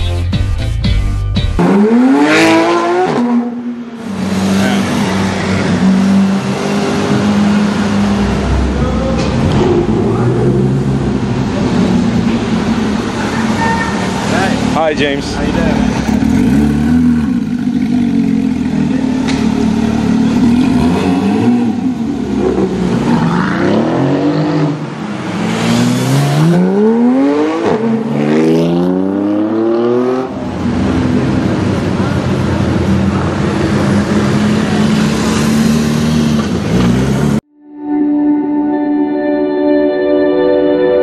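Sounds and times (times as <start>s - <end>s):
car engine revving: 1.6s - 37.4s.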